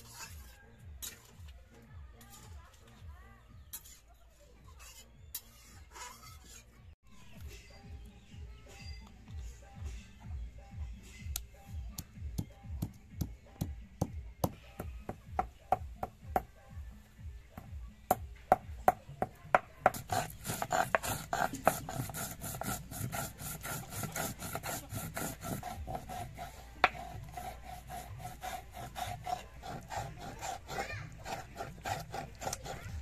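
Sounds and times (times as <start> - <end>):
stone rasping rub: 0.0 - 1.2, 3.7 - 6.8, 19.8 - 33.0
stone roller knocking on spices: 17.6 - 26.2.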